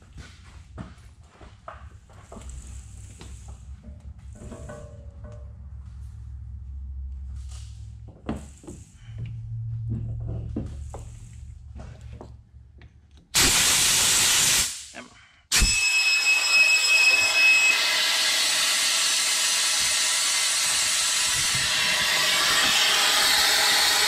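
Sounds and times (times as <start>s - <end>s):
compressed air hissing: 13.4s - 15.7s
high whistle: 15.5s - 24.0s.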